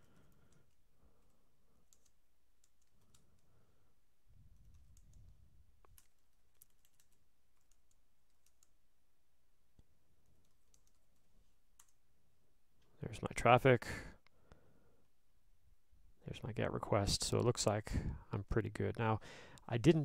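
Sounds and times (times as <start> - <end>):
faint keyboard typing: 0.0 - 8.9, 9.7 - 12.1.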